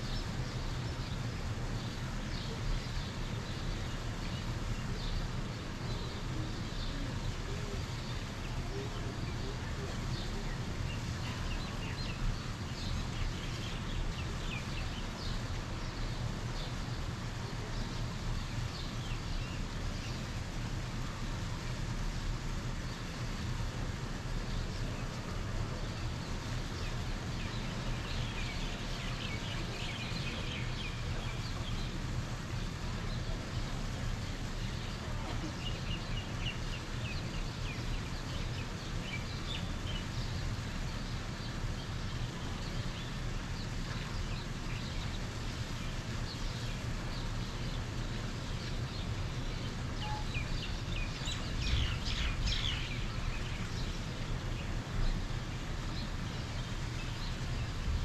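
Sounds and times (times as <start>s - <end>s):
low outdoor rumble: 0.0s - 58.0s
small birds chirping: 24.3s - 58.0s.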